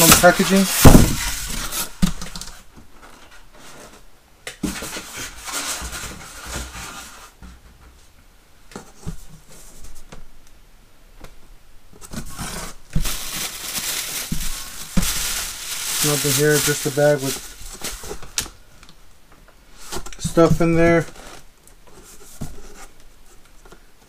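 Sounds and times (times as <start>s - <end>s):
soft rustling of packing: 12.0s - 24.0s.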